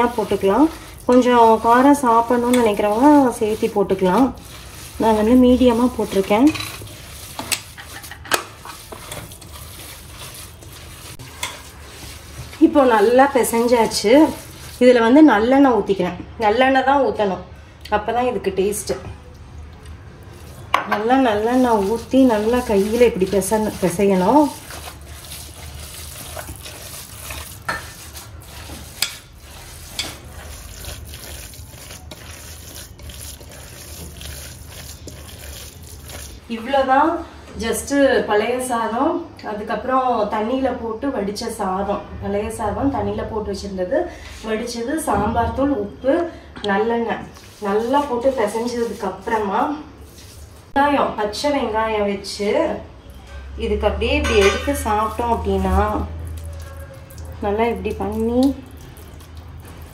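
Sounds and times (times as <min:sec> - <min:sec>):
hand squishing wet rice: 0:00.0 - 0:14.9, 0:20.3 - 0:20.6, 0:21.3 - 0:36.5, 0:47.3 - 0:49.4, 0:54.9 - 0:59.9
rice squished by hand: 0:21.4 - 0:36.5.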